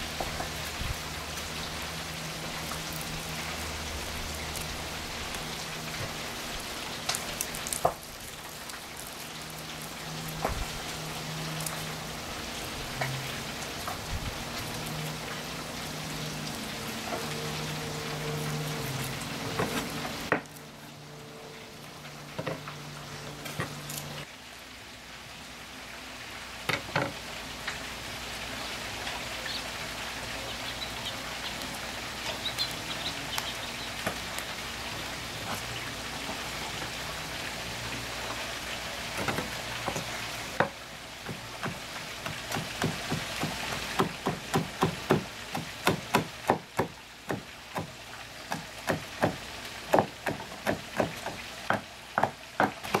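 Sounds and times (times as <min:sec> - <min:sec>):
knife chopping herbs on wood: 0:39.2 - 0:53.0.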